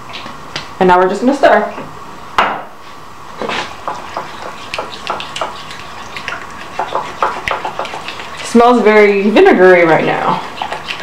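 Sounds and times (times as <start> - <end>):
wet squelches of stirring: 3.3 - 11.0.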